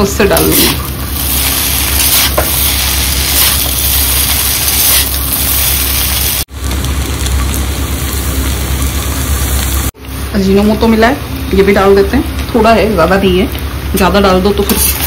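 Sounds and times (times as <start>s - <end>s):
food sizzling in a pan: 0.1s - 10.2s, 14.5s - 15.0s.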